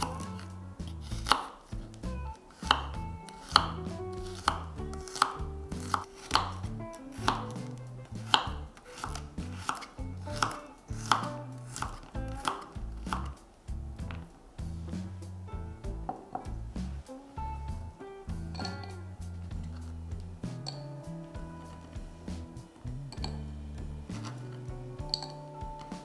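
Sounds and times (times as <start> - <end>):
knife chopping on wooden board: 0.0 - 1.6, 2.6 - 6.6, 7.2 - 7.6, 8.2 - 13.3.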